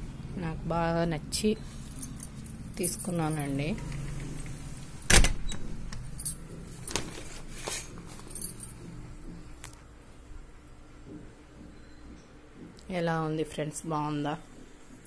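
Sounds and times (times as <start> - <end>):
light metallic jingle: 1.6 - 4.6, 5.9 - 6.9, 7.8 - 9.5
handling noise: 1.8 - 9.9.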